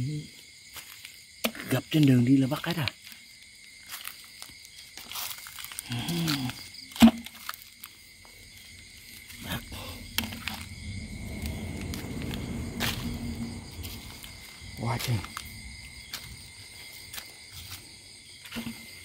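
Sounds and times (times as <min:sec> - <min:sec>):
night insects calling: 0:00.0 - 0:19.0
low rumble: 0:09.4 - 0:16.0.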